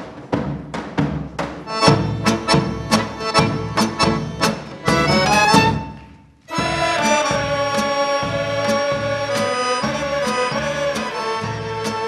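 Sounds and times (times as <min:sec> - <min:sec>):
drum beats: 0:00.0 - 0:12.0
accordions and violins: 0:01.7 - 0:12.0
men singing: 0:06.5 - 0:12.0.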